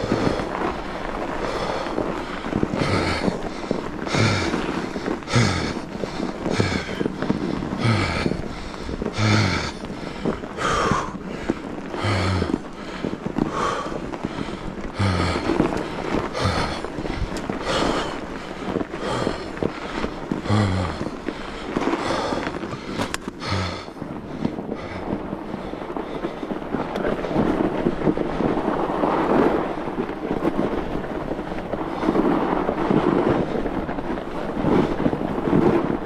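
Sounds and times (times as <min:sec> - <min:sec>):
bike rattling and clicking: 0:00.0 - 0:36.0
tyres crunching on snow: 0:00.0 - 0:36.0.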